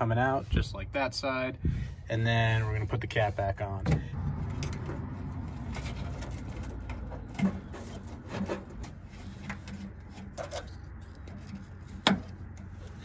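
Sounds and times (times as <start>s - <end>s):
wiring rubbing and scraping: 4.4s - 13.0s.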